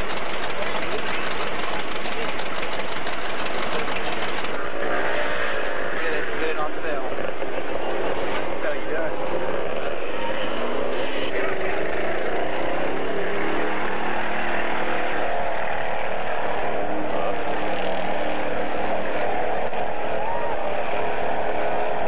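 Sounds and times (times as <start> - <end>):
off-road vehicle engine revving: 0.0 - 22.0.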